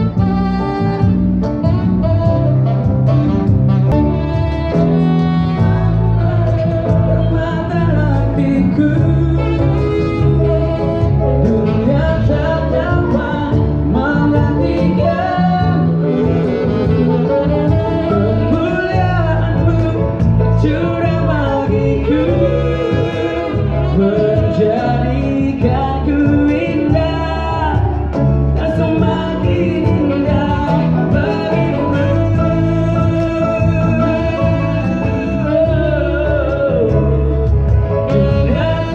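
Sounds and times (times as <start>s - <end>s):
electric guitar: 0.0s - 38.9s
piano: 0.0s - 38.9s
man and woman singing: 6.2s - 16.6s, 17.4s - 37.5s.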